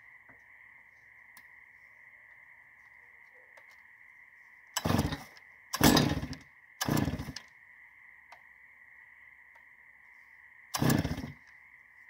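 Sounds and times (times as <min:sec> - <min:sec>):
faint steady high tone: 0:00.0 - 0:05.7
chainsaw engine bursts: 0:04.8 - 0:07.5, 0:10.7 - 0:11.4.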